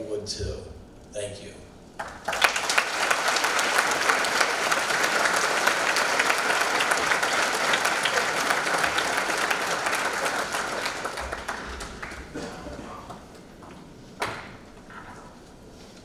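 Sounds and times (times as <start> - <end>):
audience applauding: 2.0 - 13.3.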